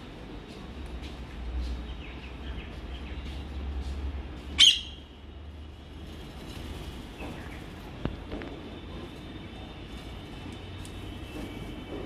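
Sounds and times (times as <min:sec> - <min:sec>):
parakeet screeching: 0:04.6 - 0:05.0
parakeets chirping: 0:04.6 - 0:05.1.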